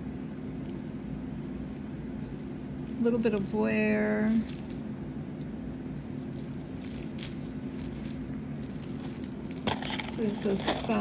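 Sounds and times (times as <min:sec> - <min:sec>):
steady low hum: 0:00.0 - 0:11.0
bead bracelet clicking and rattling: 0:04.3 - 0:11.0.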